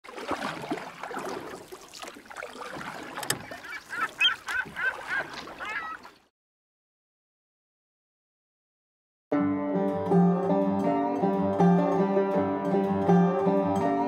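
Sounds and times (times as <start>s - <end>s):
birds calling: 2.6s - 6.2s.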